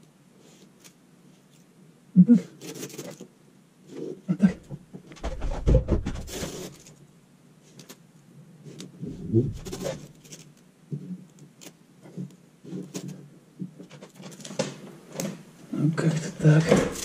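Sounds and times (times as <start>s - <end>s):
handling clicks and rustles: 9.5s - 17.0s.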